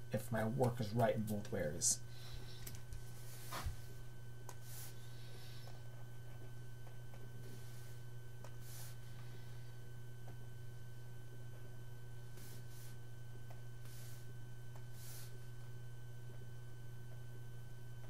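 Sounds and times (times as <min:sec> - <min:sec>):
faint high whine: 0:00.0 - 0:18.0
low electrical hum: 0:00.0 - 0:18.0.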